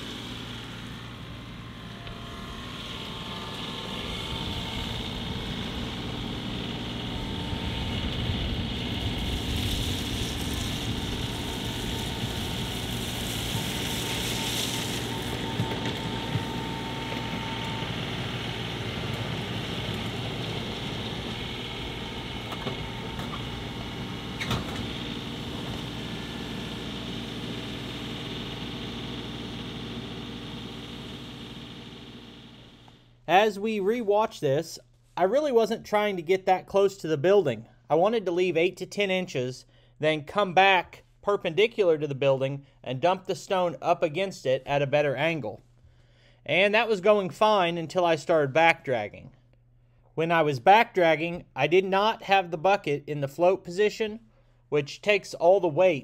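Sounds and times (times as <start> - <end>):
tractor diesel engine running: 0.0 - 33.1.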